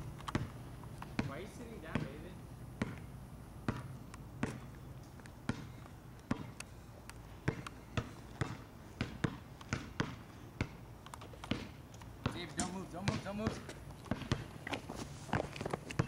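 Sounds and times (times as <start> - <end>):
basketball bouncing on asphalt: 0.0 - 16.0.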